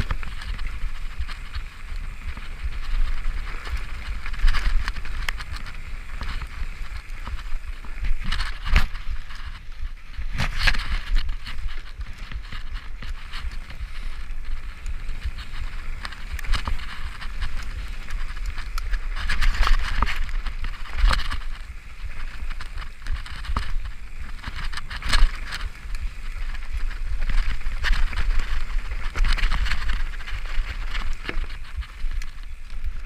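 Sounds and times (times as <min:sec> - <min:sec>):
bike rattling and knocking: 0:00.0 - 0:33.0
bike tyres rolling over dirt: 0:00.0 - 0:33.0
low wind rumble: 0:00.0 - 0:33.0.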